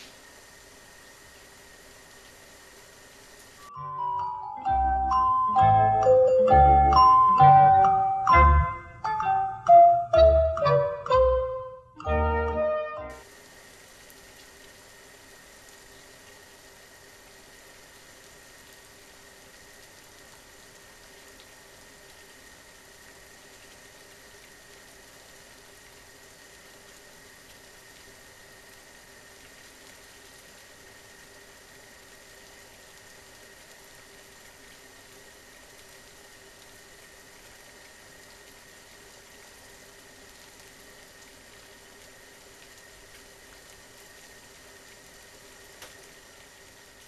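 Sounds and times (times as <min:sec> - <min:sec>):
water heating faint hiss: 0:00.0 - 0:03.7, 0:12.1 - 0:47.0
steady high tone: 0:03.6 - 0:13.2
small ticks: 0:40.3 - 0:47.0.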